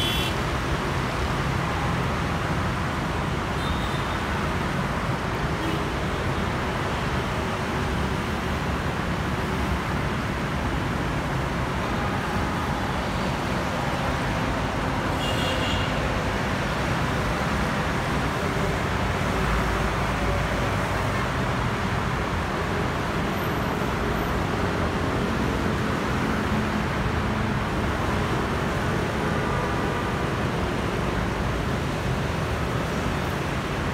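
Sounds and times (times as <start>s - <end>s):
road traffic: 0.0s - 33.9s.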